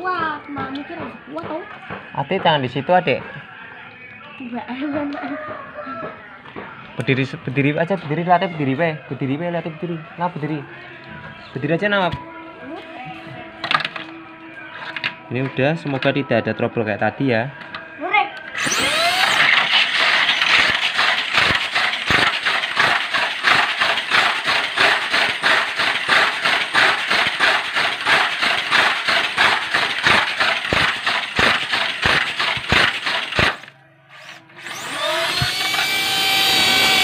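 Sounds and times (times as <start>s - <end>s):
toy car motor whining: 18.4s - 37.0s.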